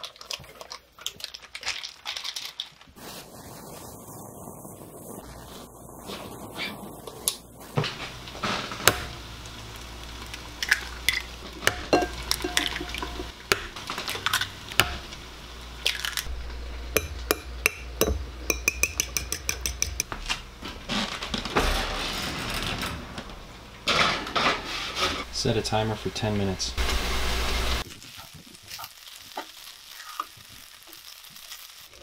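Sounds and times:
frying pan and lid knocking: 0:08.8 - 0:09.2, 0:11.5 - 0:15.2
utensil clinking on ceramic bowl: 0:11.1 - 0:13.7, 0:17.0 - 0:20.2.

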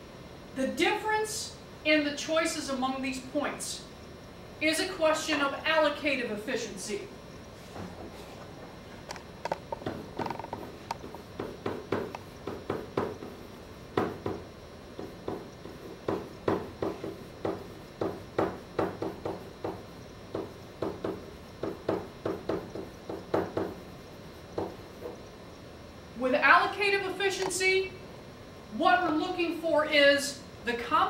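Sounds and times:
pen writing on whiteboard: 0:09.5 - 0:13.4, 0:15.0 - 0:23.9.

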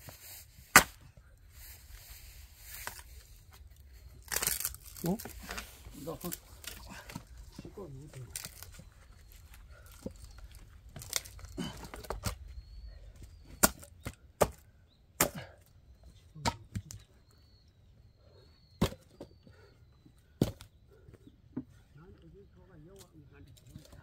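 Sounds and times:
axe chopping firewood: 0:00.6 - 0:01.2, 0:13.5 - 0:14.6, 0:15.2 - 0:15.6, 0:16.4 - 0:17.0, 0:18.8 - 0:19.3, 0:20.4 - 0:20.7.

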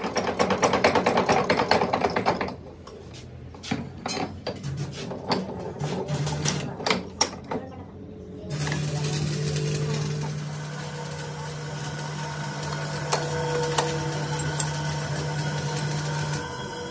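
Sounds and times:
bench vise clicking and knocking: 0:00.0 - 0:03.0.

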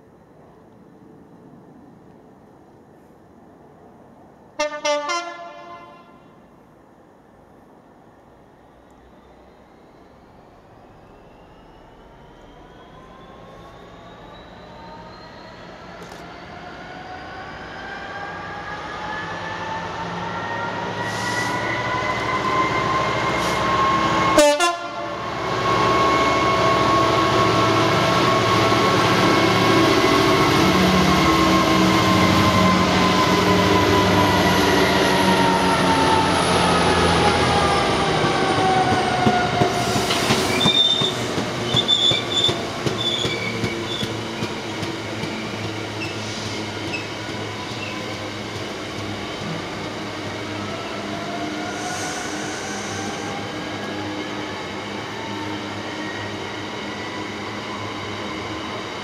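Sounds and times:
diesel locomotive engine drone: 0:00.0 - 0:59.0
wheel squeal: 0:11.1 - 0:16.1, 0:40.0 - 0:44.5, 0:46.0 - 0:48.1
train wagons rumbling over rails: 0:20.6 - 0:55.4.

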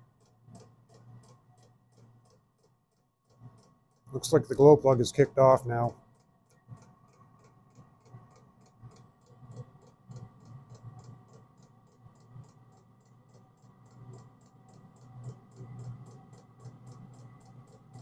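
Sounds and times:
heater fans humming: 0:04.1 - 0:06.0.

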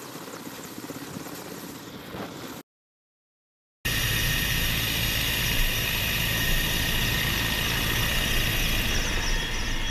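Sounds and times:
helicopter rotor and turbine noise: 0:03.9 - 0:09.9.

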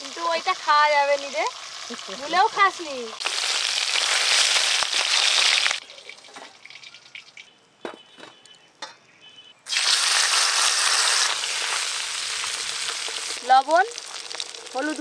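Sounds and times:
fish sizzling in hot oil: 0:00.0 - 0:07.5, 0:09.7 - 0:15.0
fish roe sizzling loudly: 0:09.7 - 0:15.0.

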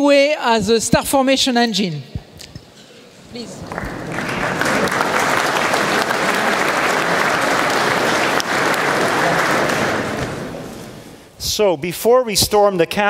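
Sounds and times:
audience applauding: 0:03.4 - 0:11.2.

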